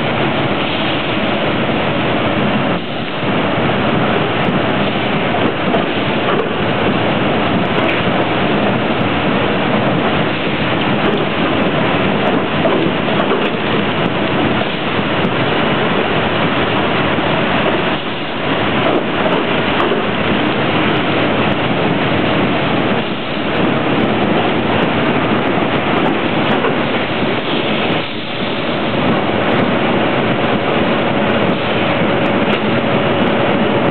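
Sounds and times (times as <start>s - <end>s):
conveyor machinery din: 0.0s - 33.9s.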